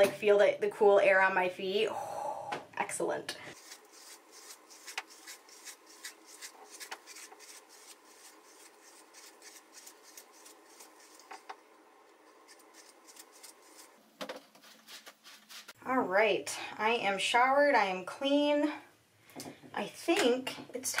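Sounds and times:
hairbrush swishing through wet hair: 0:03.5 - 0:11.4, 0:12.4 - 0:14.0.

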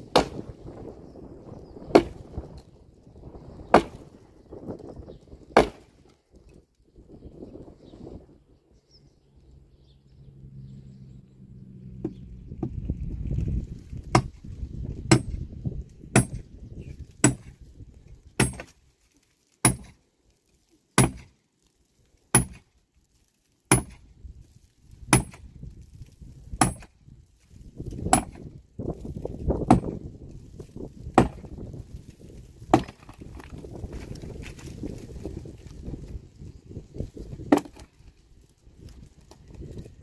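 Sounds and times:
axe chopping into tree trunk: 0:00.1 - 0:00.6, 0:01.9 - 0:02.3, 0:03.7 - 0:04.1, 0:05.5 - 0:06.0, 0:14.1 - 0:14.4, 0:15.1 - 0:15.4, 0:16.1 - 0:16.5, 0:17.2 - 0:17.6, 0:18.4 - 0:18.8, 0:19.6 - 0:20.0, 0:21.0 - 0:21.4, 0:22.3 - 0:22.7, 0:23.7 - 0:24.0, 0:25.1 - 0:25.5, 0:26.6 - 0:26.9, 0:27.9 - 0:28.5, 0:29.5 - 0:30.1, 0:31.1 - 0:31.6, 0:32.7 - 0:33.6, 0:37.5 - 0:37.9.

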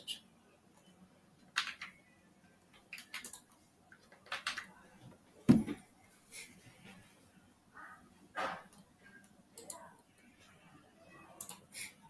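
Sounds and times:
loud thump: 0:05.5 - 0:05.8.

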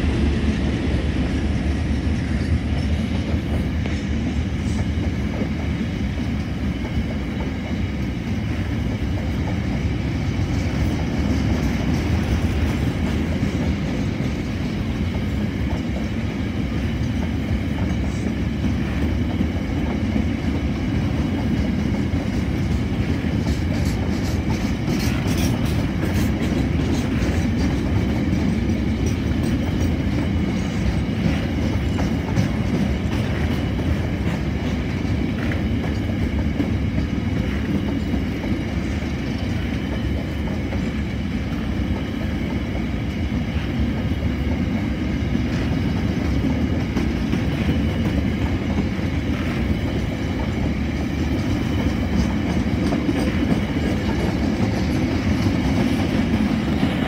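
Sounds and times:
wheels clattering on rails: 0:00.0 - 0:57.0.

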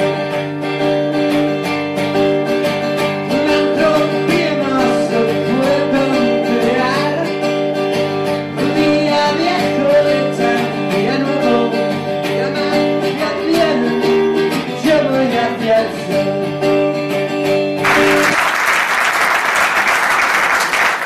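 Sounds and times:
acoustic guitar strumming: 0:00.0 - 0:18.4
man singing: 0:03.1 - 0:07.6, 0:08.4 - 0:17.0
audience applause: 0:17.8 - 0:21.0.

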